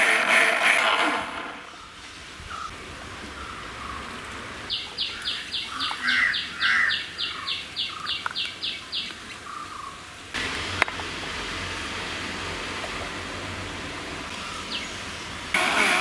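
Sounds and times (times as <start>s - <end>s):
bird chirping: 1.7s - 10.0s, 14.3s - 15.5s
faint bird calls: 1.7s - 10.1s, 14.3s - 16.0s.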